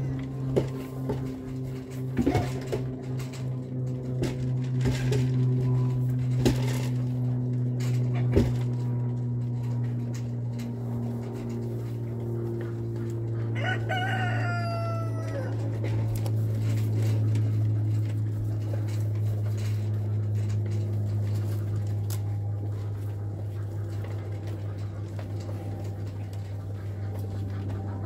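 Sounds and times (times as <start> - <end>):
steady low hum: 0.0 - 28.0
rooster crowing: 13.5 - 15.7.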